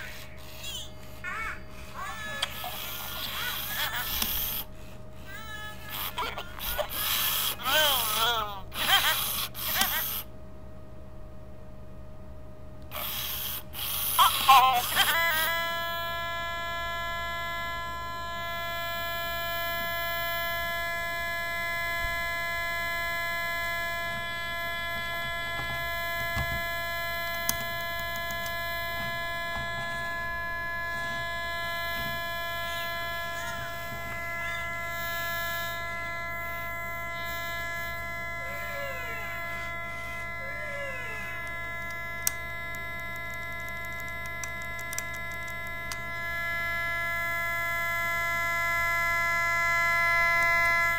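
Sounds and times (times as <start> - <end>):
toy garbled outburst: 0.0 - 4.6, 5.3 - 10.2, 13.9 - 15.8
electronic buzzing drone: 0.0 - 10.3, 12.9 - 50.9.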